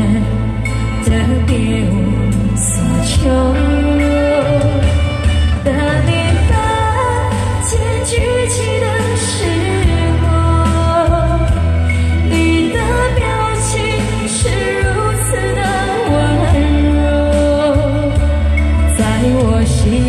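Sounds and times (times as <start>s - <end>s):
karaoke backing track: 0.0s - 20.0s
woman singing into a microphone: 0.0s - 20.0s.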